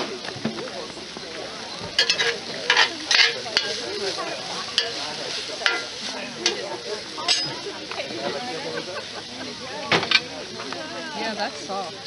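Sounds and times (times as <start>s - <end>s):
vegetables sizzling: 0.8s - 12.0s
spoon scraping cast-iron pot: 2.0s - 3.9s, 4.7s - 6.6s.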